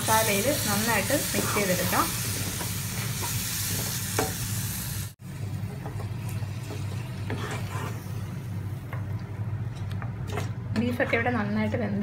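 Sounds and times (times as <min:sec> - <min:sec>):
frying sizzle: 0:00.0 - 0:08.8
spatula scraping a pan: 0:07.2 - 0:08.1.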